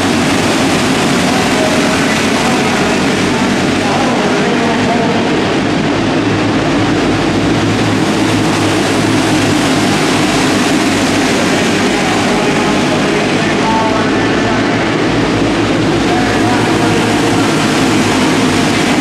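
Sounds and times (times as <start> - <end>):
racing go-kart engines droning: 0.0 - 19.0.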